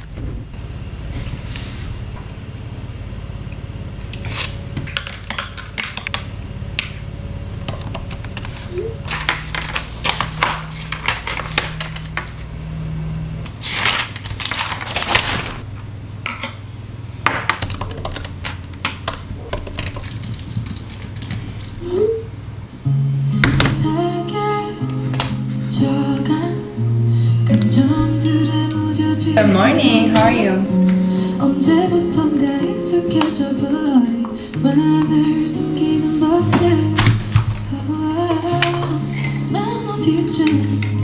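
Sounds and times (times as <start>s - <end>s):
steady low hum: 0.0s - 41.0s
typing on laptop keyboard: 19.1s - 21.4s.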